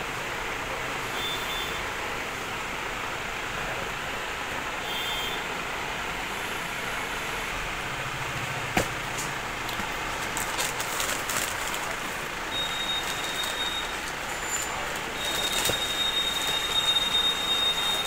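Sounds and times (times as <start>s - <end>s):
paper and cardboard rustling: 8.8s - 18.0s.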